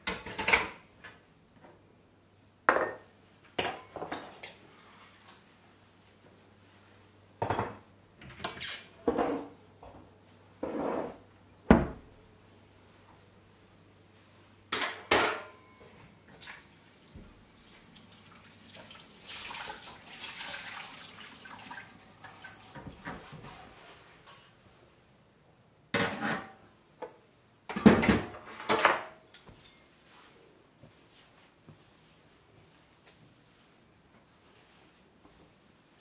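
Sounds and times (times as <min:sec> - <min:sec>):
kitchenware clattering against sink: 0:00.0 - 0:00.8, 0:03.6 - 0:04.6, 0:14.7 - 0:16.8, 0:27.7 - 0:29.9.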